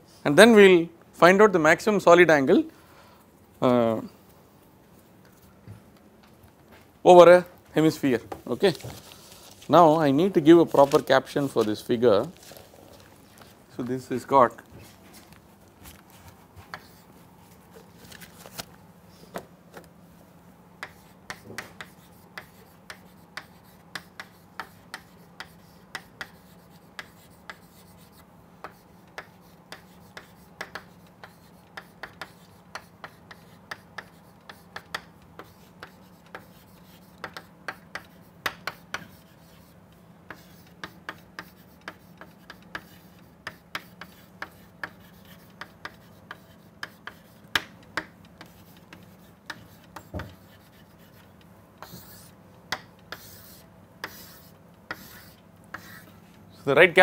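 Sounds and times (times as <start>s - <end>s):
faint steady hum: 0.0s - 57.0s
chalk scratching on blackboard: 16.7s - 17.1s, 20.8s - 56.7s.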